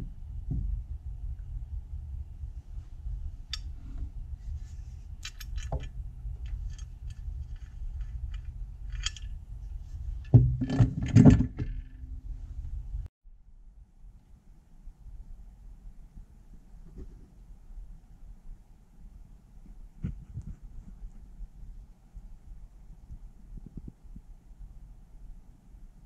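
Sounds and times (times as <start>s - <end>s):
metal grinder knocking on wooden bench: 10.3s - 11.9s.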